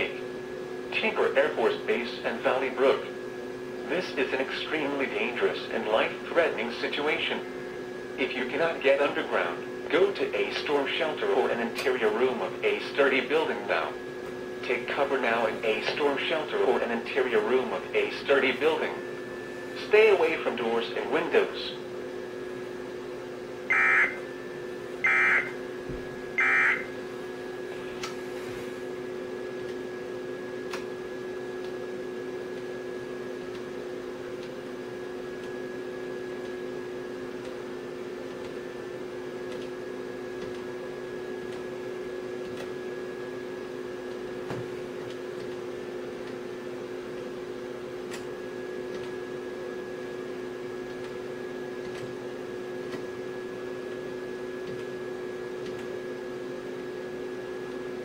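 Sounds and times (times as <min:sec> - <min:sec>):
steady electrical hum: 0:00.0 - 0:58.0
digital data tone squeal: 0:23.7 - 0:24.2, 0:25.0 - 0:25.6, 0:26.4 - 0:26.9.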